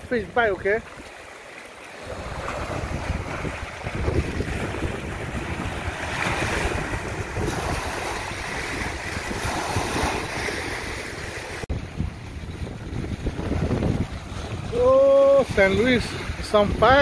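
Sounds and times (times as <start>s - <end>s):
gusty wind buffeting microphone: 2.0s - 17.0s.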